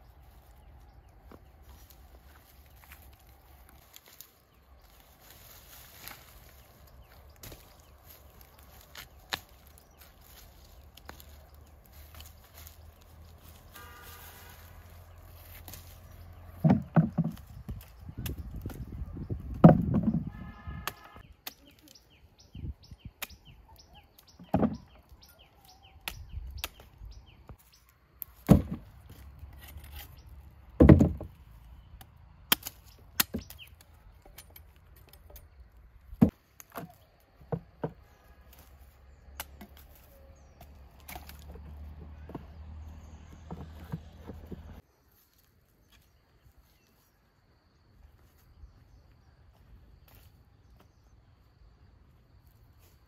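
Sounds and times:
chopping knocks and thuds: 0:16.6 - 0:18.8, 0:19.5 - 0:21.0, 0:24.4 - 0:24.8, 0:28.4 - 0:28.9, 0:30.8 - 0:31.4.

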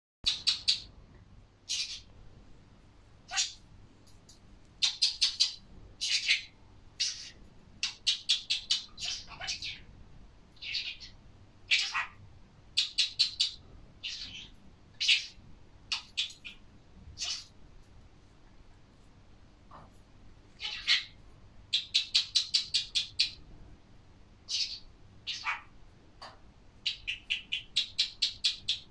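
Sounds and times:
budgerigar chirping: 0:00.2 - 0:00.9, 0:01.7 - 0:02.1, 0:03.3 - 0:03.6, 0:04.8 - 0:09.8, 0:10.6 - 0:12.2, 0:12.8 - 0:16.6, 0:17.2 - 0:17.6, 0:20.6 - 0:23.4, 0:24.5 - 0:25.7, 0:26.8 - 0:28.9.

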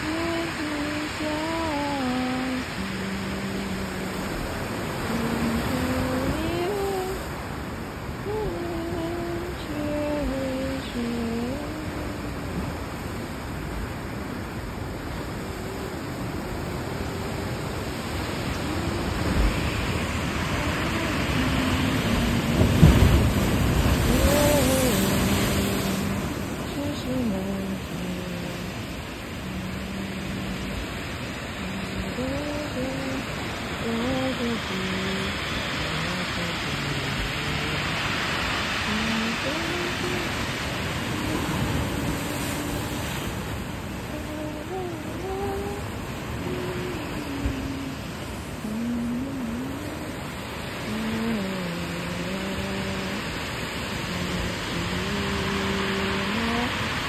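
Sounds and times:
ocean surf breaking on rocks: 0:00.0 - 0:57.0
soft slow melody: 0:44.0 - 0:53.2.

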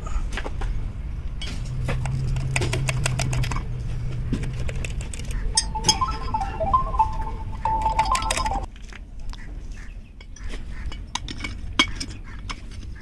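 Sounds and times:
pitched tone: 0:05.5 - 0:08.7.

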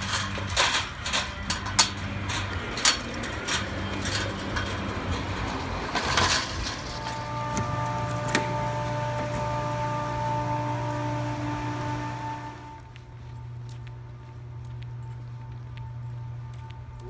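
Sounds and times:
chain-link gate rattling: 0:00.0 - 0:08.4
steady hum with held tones: 0:06.4 - 0:17.0.

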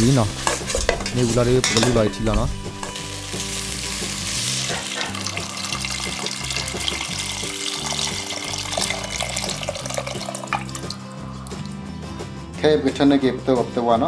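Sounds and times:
background music: 0:00.0 - 0:14.0
water pouring into a steel pot: 0:03.9 - 0:11.7.

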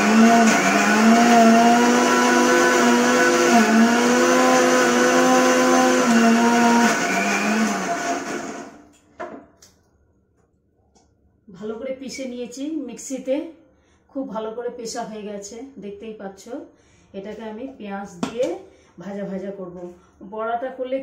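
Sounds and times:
mixer grinder running: 0:00.0 - 0:08.8.

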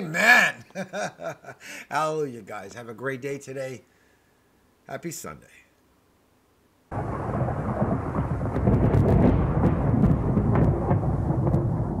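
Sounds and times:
thunder rumble with crackles: 0:06.9 - 0:12.0.

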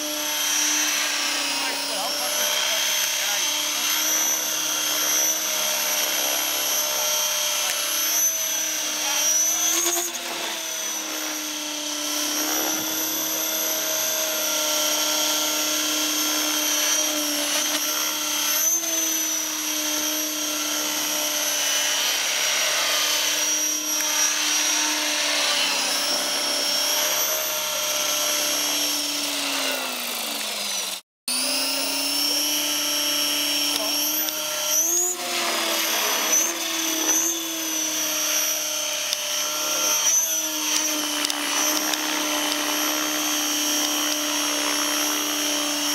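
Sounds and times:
rc helicopter whine: 0:00.0 - 0:45.9.

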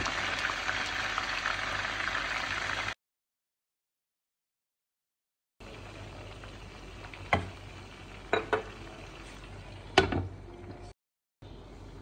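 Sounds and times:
kebabs sizzling in oil: 0:00.0 - 0:03.0, 0:05.6 - 0:10.0.

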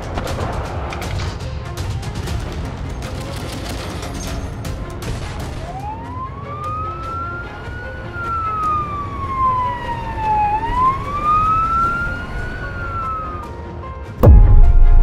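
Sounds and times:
siren wailing: 0:05.6 - 0:13.6.

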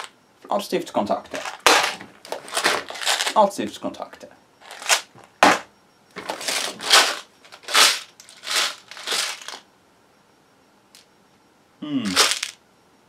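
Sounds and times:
plastic bag crinkling: 0:01.3 - 0:03.4, 0:04.6 - 0:05.6, 0:06.2 - 0:09.6, 0:12.1 - 0:12.6.

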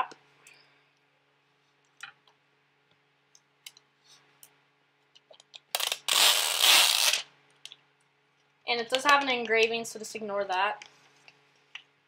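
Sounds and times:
plastic wrap ripping: 0:05.7 - 0:07.3.

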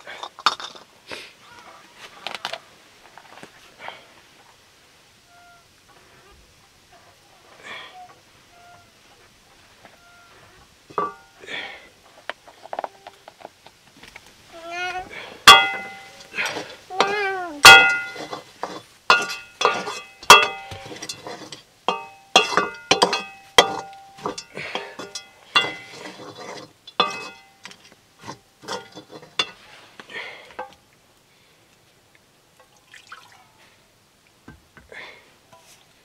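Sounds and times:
metal spatula scraping wok: 0:15.5 - 0:29.9.

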